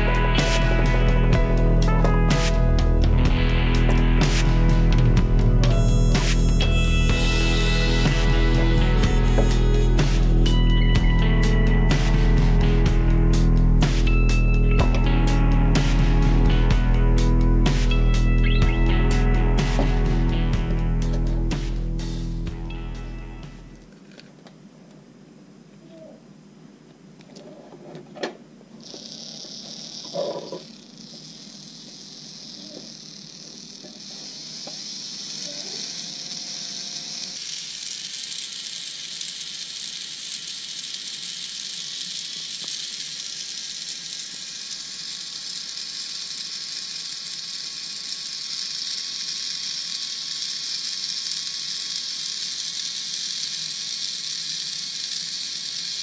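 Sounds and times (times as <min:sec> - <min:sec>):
servo motor whirring: 0:03.7 - 0:12.8, 0:28.8 - 0:56.0.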